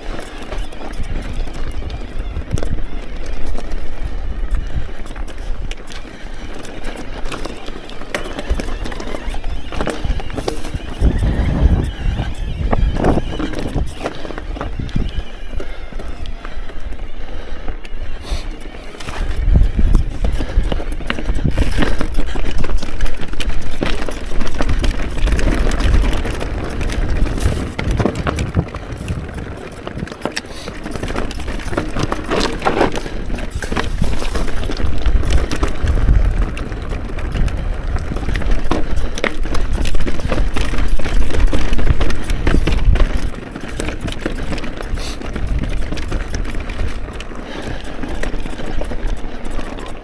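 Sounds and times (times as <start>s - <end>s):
tyres rolling over rock: 0.0s - 17.1s, 18.2s - 50.0s
bike rattling: 0.0s - 50.0s
wind rumble on microphone: 0.0s - 50.0s.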